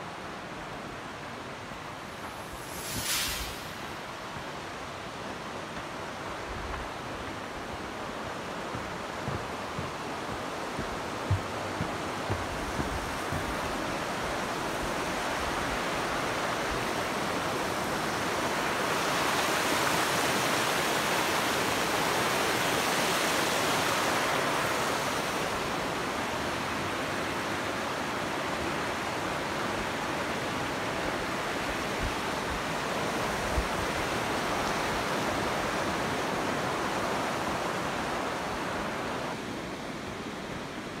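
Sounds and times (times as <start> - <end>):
river rushing over rocks: 0.0 - 41.0.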